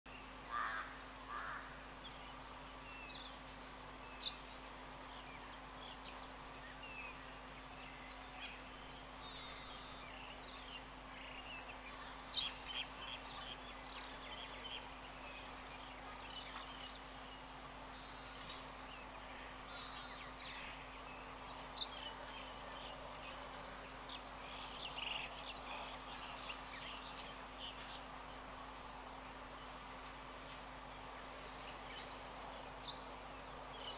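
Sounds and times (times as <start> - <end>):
birds chirping: 0.1 - 33.9
faint steady hum: 0.1 - 33.9.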